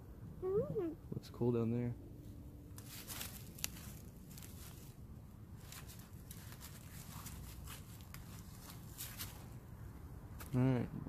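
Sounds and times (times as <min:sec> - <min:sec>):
low steady rumble: 0:00.0 - 0:11.0
footsteps in dry leaves: 0:02.7 - 0:09.7.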